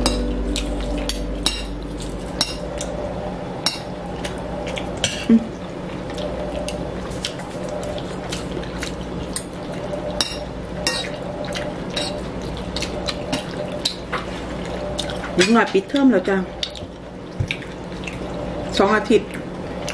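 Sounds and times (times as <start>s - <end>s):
brief low-pitched sound: 0.0s - 3.2s
low background hum: 0.0s - 19.9s.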